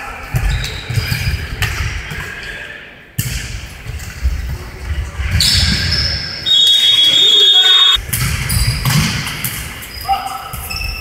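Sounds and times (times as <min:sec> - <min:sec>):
high steady whistle: 0:06.4 - 0:08.0.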